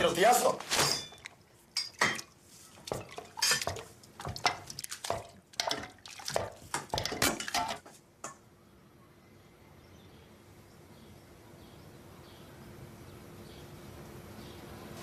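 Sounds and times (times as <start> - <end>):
dishes and cutlery clattering: 0.8 - 2.3, 2.9 - 7.9.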